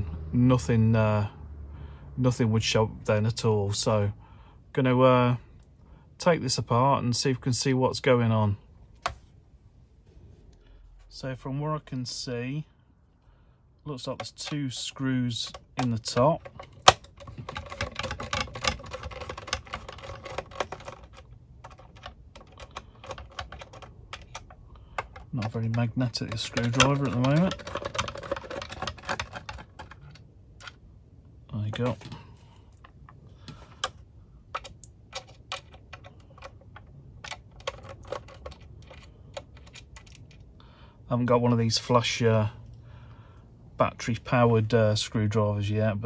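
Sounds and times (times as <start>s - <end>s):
clicks and taps on plastic case: 15.5s - 30.8s
screwdriver turning a screw: 15.8s - 30.0s.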